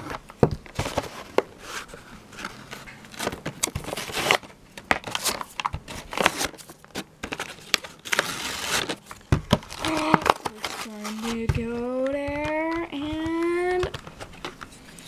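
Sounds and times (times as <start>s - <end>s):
plastic packaging crinkling: 0.6s - 15.0s
cardboard tearing: 3.1s - 11.5s.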